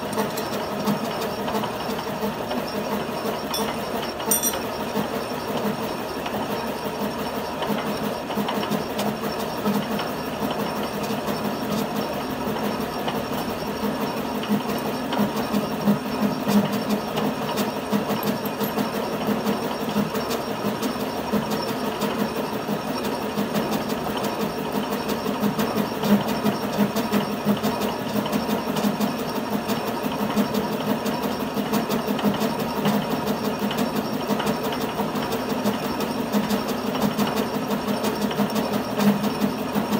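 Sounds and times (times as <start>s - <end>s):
rattle of metal cutting: 3.4s - 4.9s, 17.5s - 19.2s
metal lathe humming: 17.5s - 19.6s.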